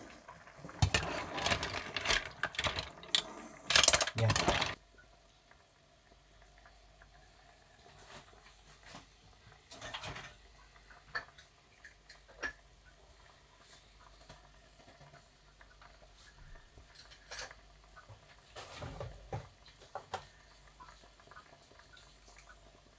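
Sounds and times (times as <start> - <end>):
broth simmering: 0.0 - 22.9
kitchen items clicking: 0.7 - 4.8.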